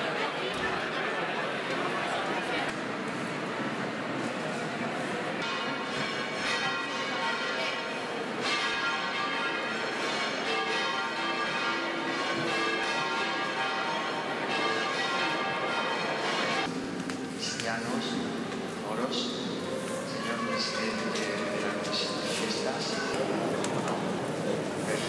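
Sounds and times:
church bells ringing: 5.4 - 16.8.

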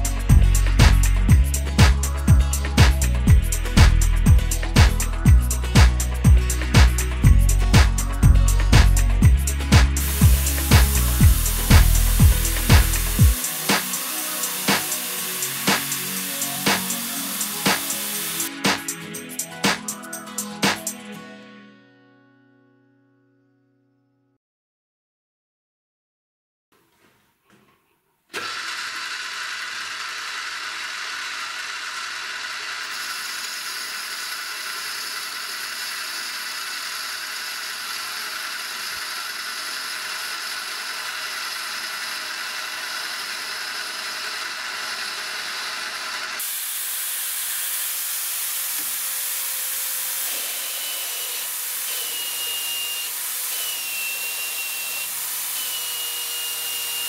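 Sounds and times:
drill boring into steel: 7.9 - 20.0, 28.3 - 57.0
metal lathe whining: 9.5 - 20.0, 28.4 - 57.0.

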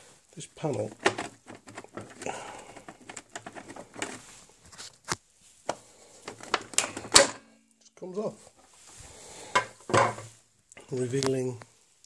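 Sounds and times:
plastic panel clicks and scraping: 0.7 - 4.2, 5.1 - 7.4.

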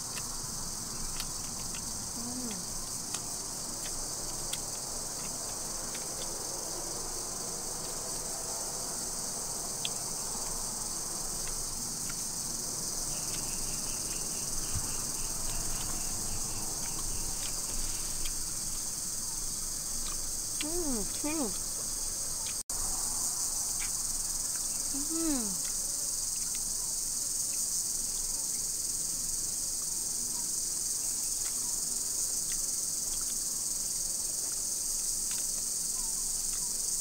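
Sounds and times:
high-pitched insect chorus: 0.0 - 37.0.

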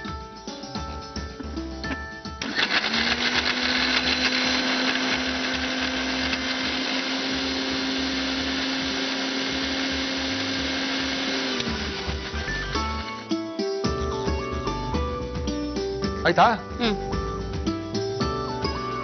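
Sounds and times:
mixer grinder humming: 1.4 - 13.4.

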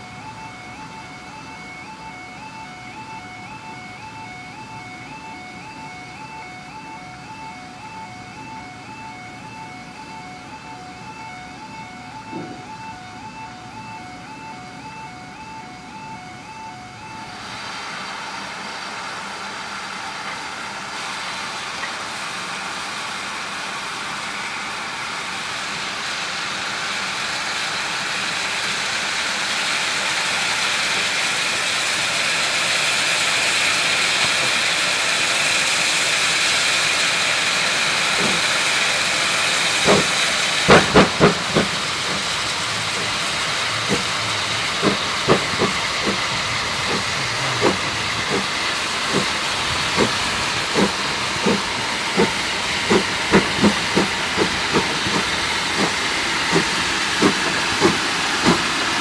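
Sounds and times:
steam engine hissing: 17.1 - 59.0
wheels clicking over track: 36.5 - 59.0.

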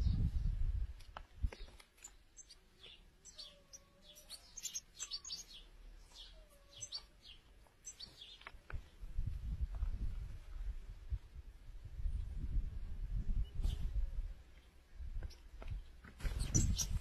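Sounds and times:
goldfinch twittering: 2.4 - 5.6, 16.4 - 17.0.

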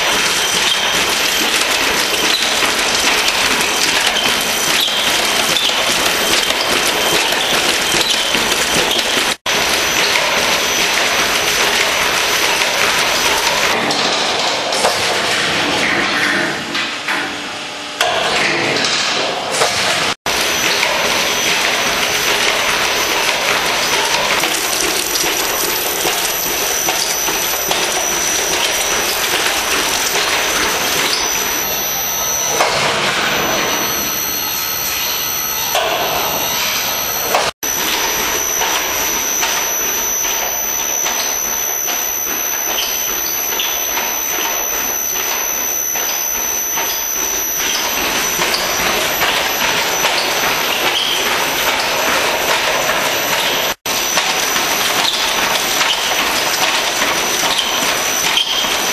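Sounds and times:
fast mechanical clatter: 0.0 - 15.4
machine drums rumbling: 0.0 - 16.9, 18.3 - 58.9
thin high whine: 20.4 - 55.9.

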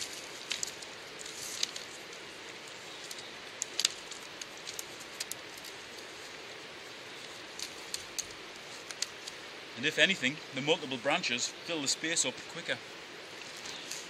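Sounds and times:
twigs clicking and snapping: 0.0 - 9.4, 13.3 - 14.0
willow rods rustling: 0.0 - 14.0.

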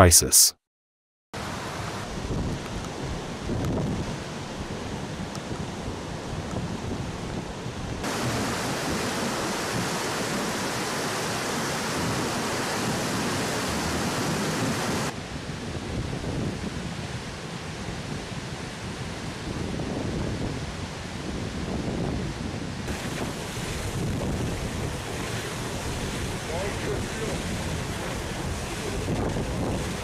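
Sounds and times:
river floodwater rushing: 8.0 - 15.1, 22.9 - 30.0.

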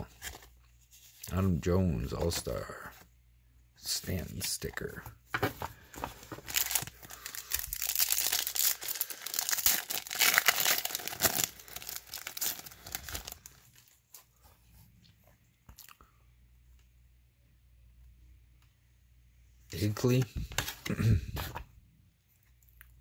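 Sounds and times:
foil wrapper tearing and crinkling: 6.2 - 13.8.

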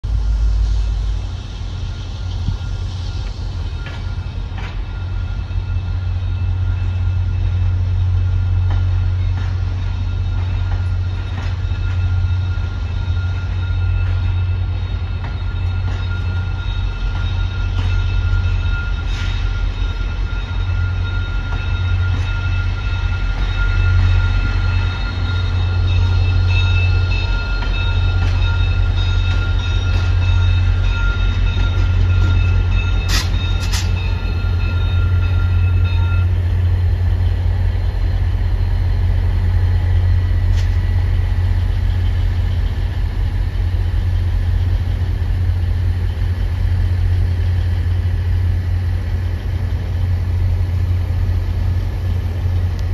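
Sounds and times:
train cars rumbling past: 0.0 - 52.9
wheels clicking over rail joints: 26.8 - 36.0.

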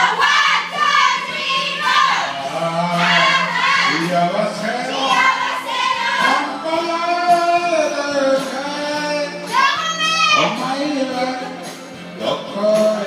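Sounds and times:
karaoke backing music: 0.0 - 13.0
person singing karaoke: 0.0 - 13.0.

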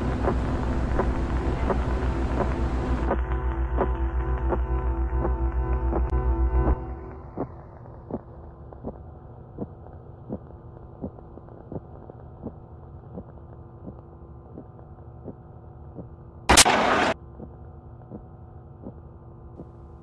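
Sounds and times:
low electronic drone: 0.0 - 10.8, 16.5 - 17.2
loud burst of hissing noise: 16.5 - 17.2.

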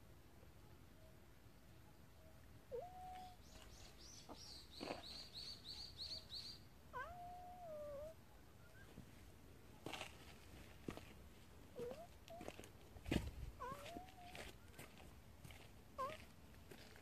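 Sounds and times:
cat meowing: 2.7 - 3.4, 6.9 - 8.2, 13.6 - 14.4, 16.0 - 16.2.

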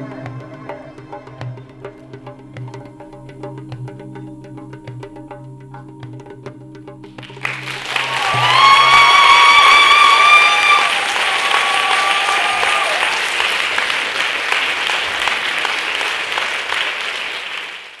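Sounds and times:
audience applauding and cheering: 7.3 - 18.0
long high-pitched cry: 8.1 - 13.0.

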